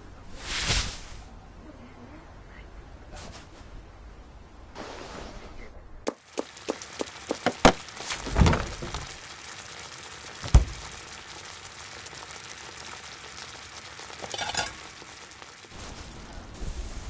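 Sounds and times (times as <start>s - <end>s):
steady hiss: 0.0s - 1.4s, 4.7s - 17.0s
heavy low thud: 10.5s - 10.9s.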